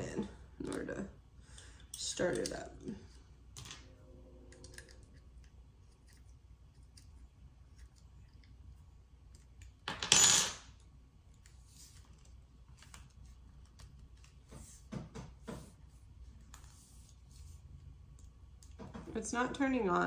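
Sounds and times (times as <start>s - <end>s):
metal wrench clattering on wooden table: 9.9s - 10.6s.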